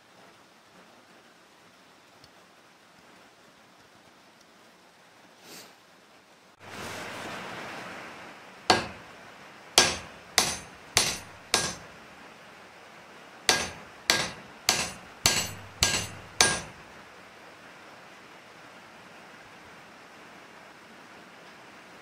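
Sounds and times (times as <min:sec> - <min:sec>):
wooden handle knocking on steel: 0:08.7 - 0:09.1, 0:09.8 - 0:11.9, 0:13.5 - 0:16.8.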